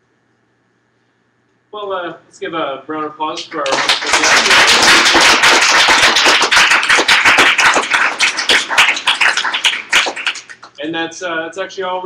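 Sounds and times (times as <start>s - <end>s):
audience applauding: 3.4s - 10.8s.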